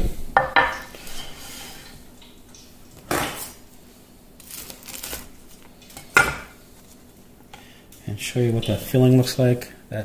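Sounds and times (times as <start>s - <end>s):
knife crunching through wonton: 4.4s - 5.5s.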